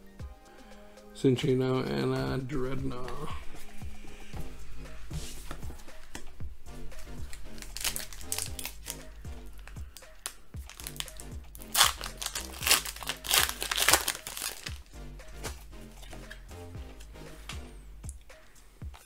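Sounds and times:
background music with steady beat: 0.0s - 19.0s
foil wrapper crinkling and tearing: 7.3s - 9.0s, 10.2s - 14.9s.

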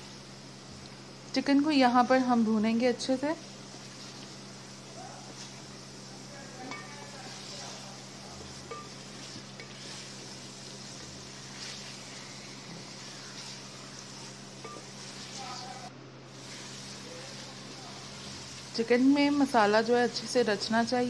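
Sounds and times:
chicken sizzling in oil: 0.0s - 21.0s
wooden spoon stirring: 3.4s - 19.8s.

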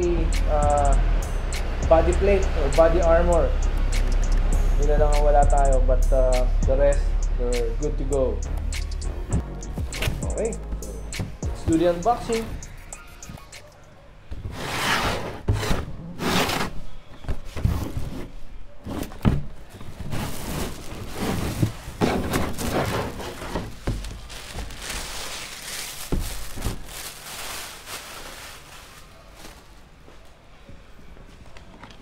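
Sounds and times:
cardboard box knocks and scrapes: 14.4s - 24.2s
plastic bag crinkling: 20.3s - 30.1s.

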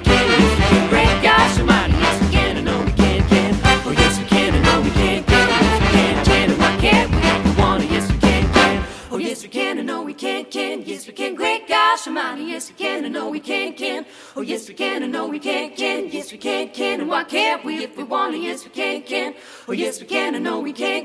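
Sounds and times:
group singing a cappella: 0.0s - 21.0s.

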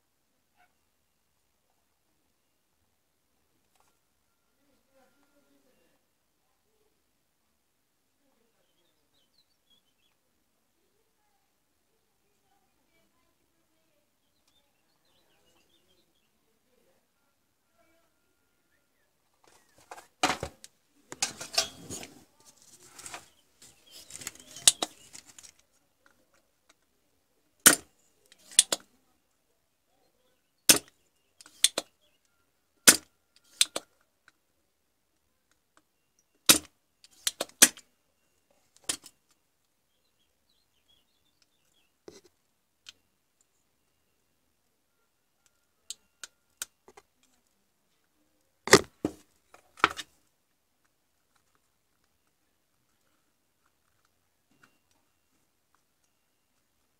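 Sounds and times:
handling rustling: 19.4s - 26.2s.

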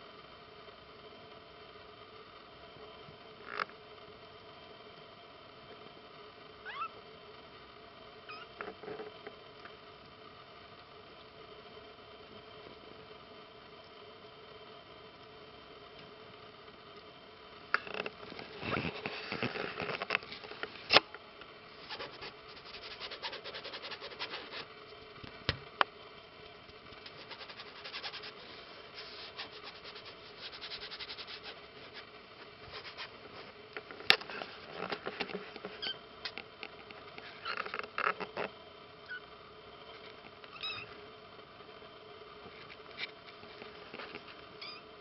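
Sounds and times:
kitten mewing: 6.6s - 6.9s
kittens scratching on fabric: 21.8s - 24.7s, 27.0s - 33.5s.

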